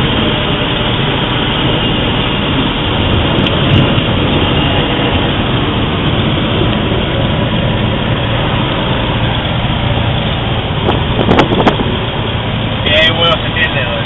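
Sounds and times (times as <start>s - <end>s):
propeller airplane engine running: 0.0s - 14.0s.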